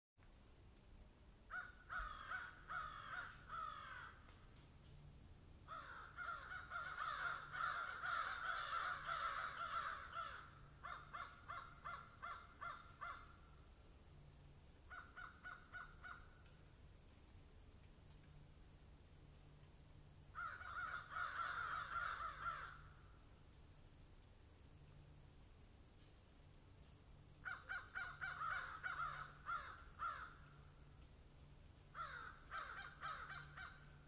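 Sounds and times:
crows cawing: 1.5s - 4.3s, 5.7s - 13.5s, 14.9s - 16.5s, 20.3s - 23.1s, 27.4s - 30.7s, 31.9s - 34.0s.

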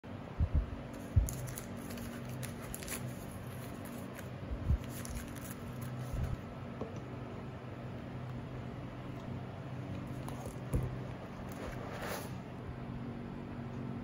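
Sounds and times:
foil packs crinkling: 1.0s - 6.3s.

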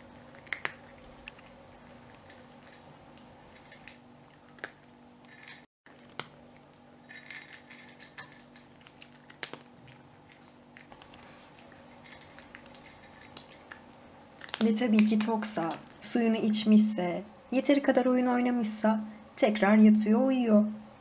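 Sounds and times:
cat crunching kibble: 0.0s - 16.0s
kibble clinking on metal plate: 7.0s - 8.8s.

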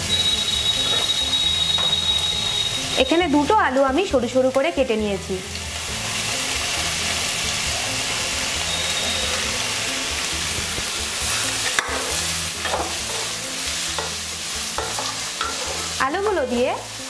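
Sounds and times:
potato strips sizzling in oil: 0.0s - 17.0s
spatula stirring: 0.8s - 2.1s, 11.2s - 16.1s
spatula knocking against pan: 14.8s - 15.9s.

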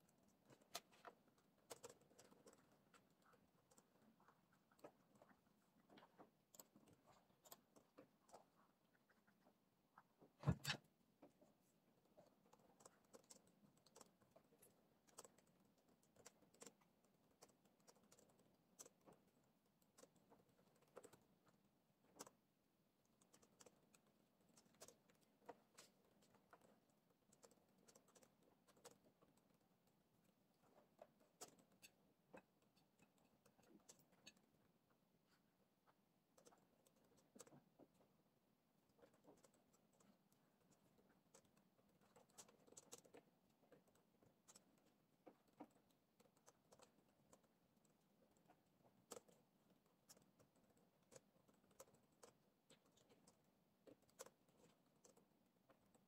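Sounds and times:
laptop keyboard typing: 12.3s - 34.6s.

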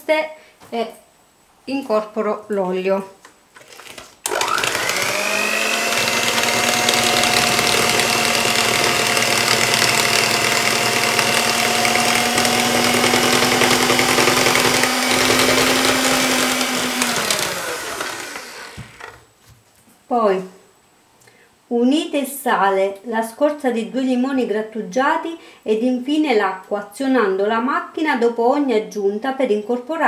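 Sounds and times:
electric hand mixer whining: 4.2s - 19.2s.

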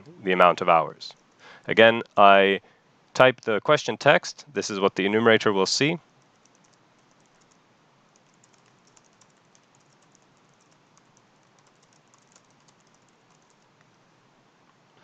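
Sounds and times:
faint keyboard typing: 6.0s - 14.0s.

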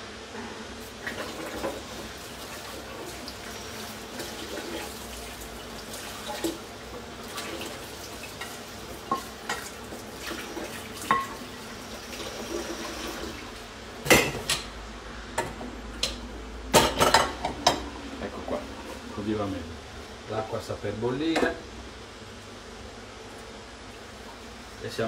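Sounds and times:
pots and pans clattering: 8.4s - 9.7s, 10.3s - 11.5s, 16.7s - 18.6s.

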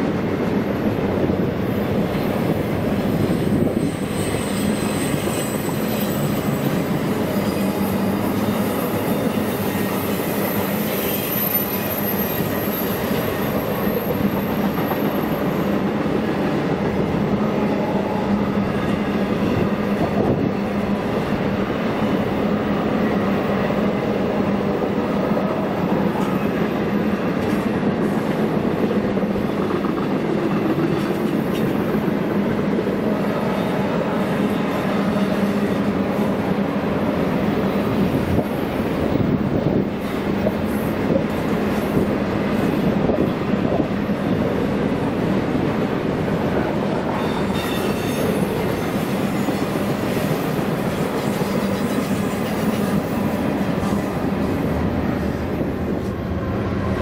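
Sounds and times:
freight train cars rolling: 0.0s - 57.0s
high-pitched wheel squeal: 3.7s - 15.5s, 47.1s - 50.6s.

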